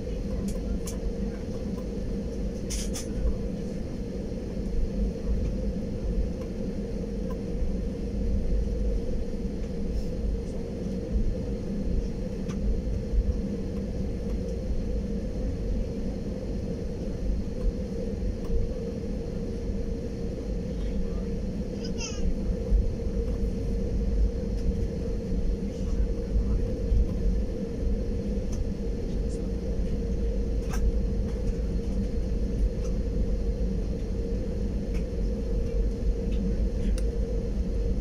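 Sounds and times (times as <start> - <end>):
faint constant hum: 0.0 - 38.0
jet airliner cabin rumble: 0.0 - 38.0.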